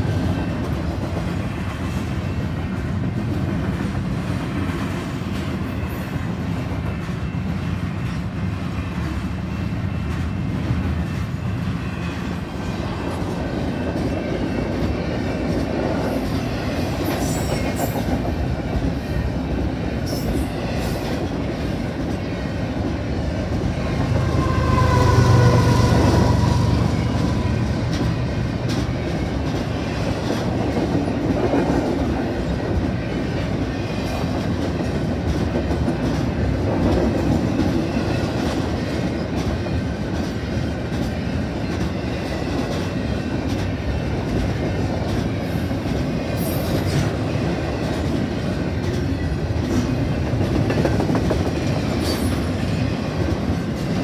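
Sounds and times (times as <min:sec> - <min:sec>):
freight train rumbling: 0:00.0 - 0:54.0.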